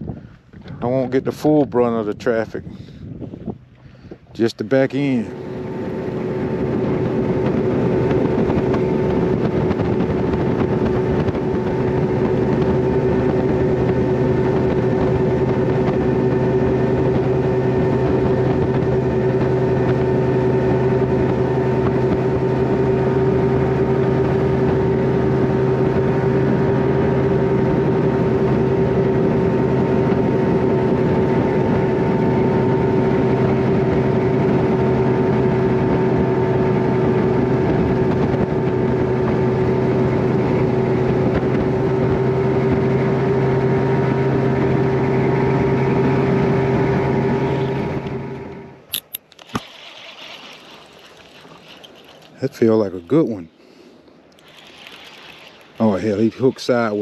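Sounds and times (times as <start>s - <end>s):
outboard motor droning: 0.0s - 57.0s
air and water rushing: 5.2s - 28.2s, 49.0s - 57.0s.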